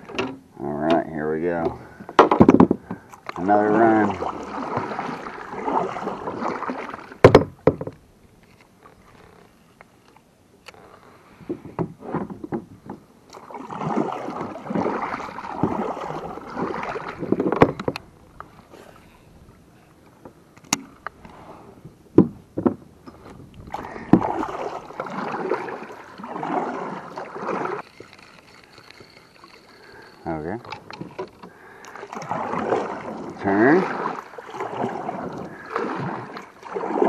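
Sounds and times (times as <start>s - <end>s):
sharp knocks: 1.6s - 3.0s, 7.2s - 8.0s, 22.2s - 22.8s
kayak paddle splashing in water: 2.0s - 8.0s, 11.3s - 19.1s, 23.3s - 37.0s.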